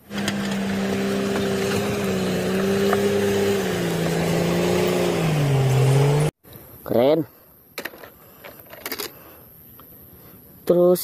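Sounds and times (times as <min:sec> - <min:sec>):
bulldozer diesel engine running: 0:00.0 - 0:06.3.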